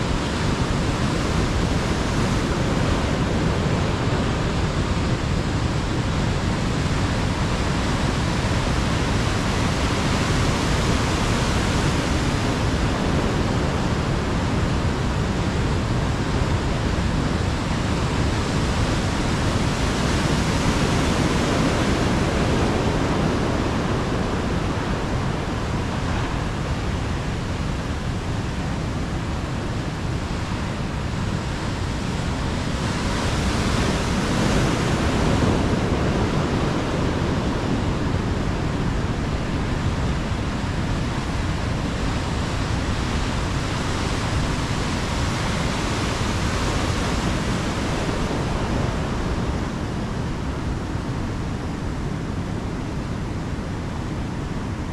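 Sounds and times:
ocean surf breaking: 0:00.0 - 0:54.9
rain: 0:00.0 - 0:54.9.

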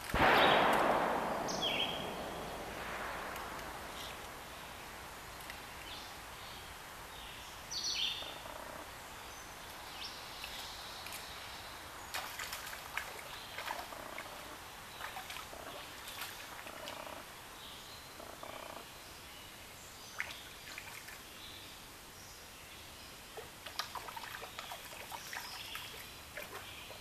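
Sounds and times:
woodland birds calling: 0:01.3 - 0:02.6, 0:03.2 - 0:12.3.

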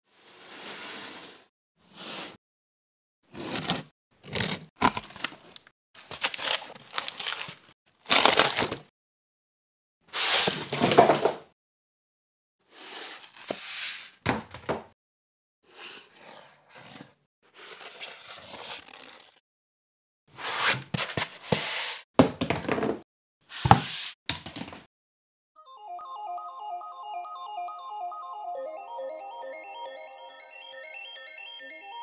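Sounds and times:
foam packing pulled apart: 0:03.4 - 0:08.8
cardboard crinkling and tearing: 0:04.4 - 0:08.8.

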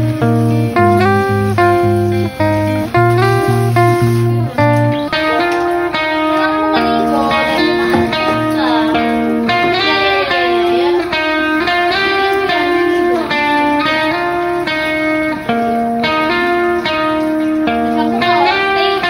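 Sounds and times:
plucked guitar melody: 0:00.0 - 0:19.0.

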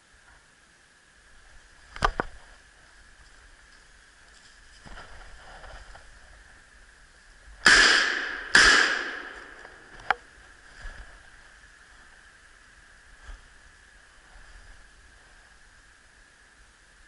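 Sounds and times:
rifle shots echoing: 0:07.6 - 0:09.9.

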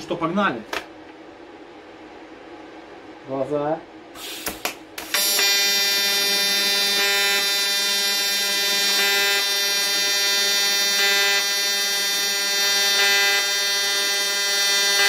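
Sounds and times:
welding arc buzzing: 0:04.1 - 0:15.0.

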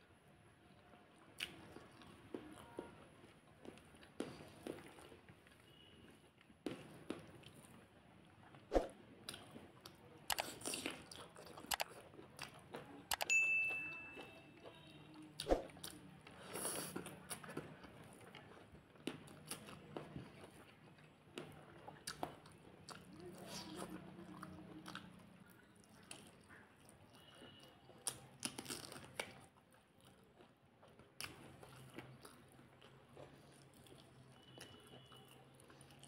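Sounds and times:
wet eating smacks and chewing: 0:01.4 - 0:05.6, 0:08.5 - 0:13.2, 0:14.6 - 0:36.0
ringing clink: 0:13.2 - 0:14.2.

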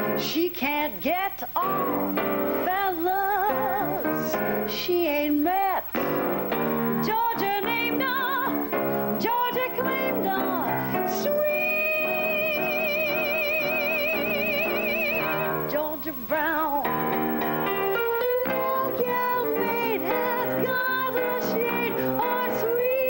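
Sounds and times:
woman singing jazz: 0:00.0 - 0:23.0.

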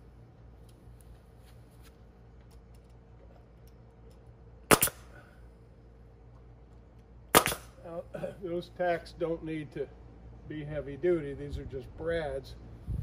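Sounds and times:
nail gun firing: 0:04.7 - 0:05.1, 0:07.3 - 0:07.8.

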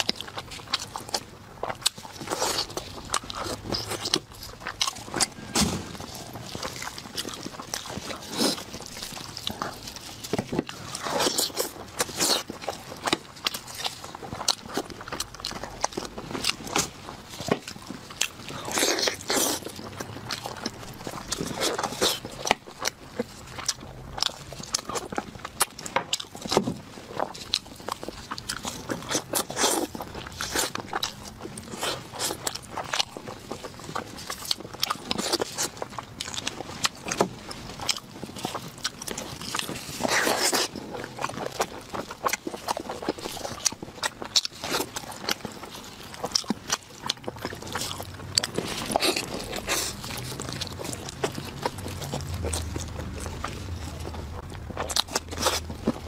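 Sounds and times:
wet chewing and lip smacks: 0:00.0 - 0:56.0
meat tearing from bone: 0:27.2 - 0:56.0.

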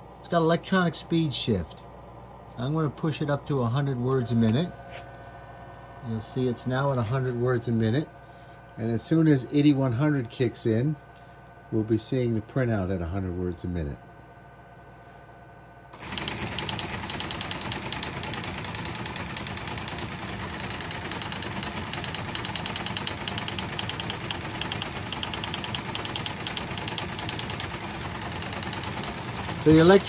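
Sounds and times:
teleprinter clattering: 0:16.0 - 0:30.0.

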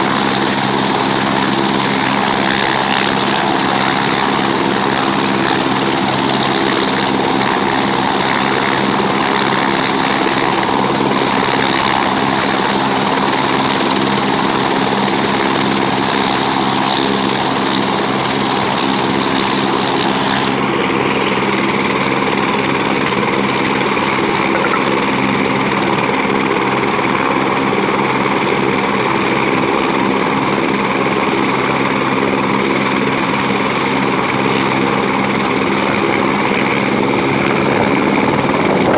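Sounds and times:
helicopter engine and rotor drone: 0:00.0 - 0:38.9
helicopter turbine whine: 0:00.0 - 0:38.9.

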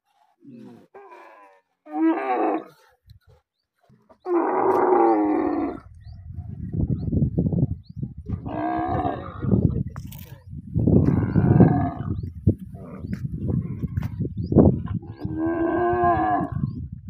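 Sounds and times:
camels moaning calls: 0:00.4 - 0:03.0, 0:04.1 - 0:06.0, 0:08.3 - 0:09.8, 0:11.0 - 0:14.1, 0:14.7 - 0:16.8.

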